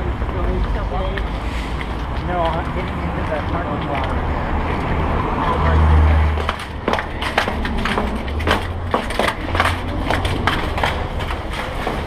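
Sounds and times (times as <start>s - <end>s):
bicycles clicking and rattling: 6.4s - 12.0s.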